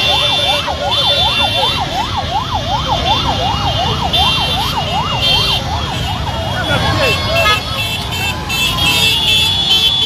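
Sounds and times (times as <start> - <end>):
siren yelping: 0.0 - 7.8
traffic rumble: 0.0 - 10.0.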